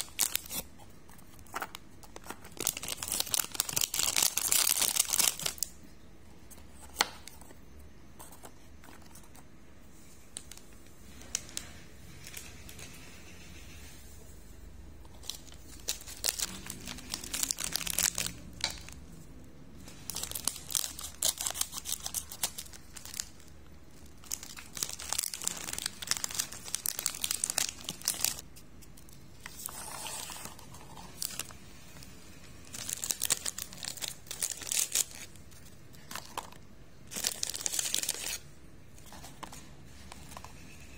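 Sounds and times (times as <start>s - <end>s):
snack wrappers crinkling and tearing: 0.0s - 5.8s, 15.1s - 19.1s, 20.0s - 30.4s, 32.6s - 38.5s.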